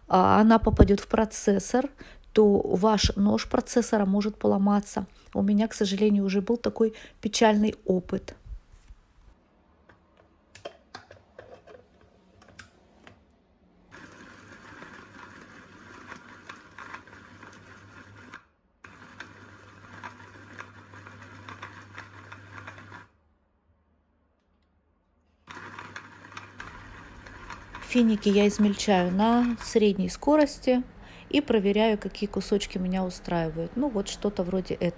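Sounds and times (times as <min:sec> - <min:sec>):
hand blender chopping: 0:25.5 - 0:29.8.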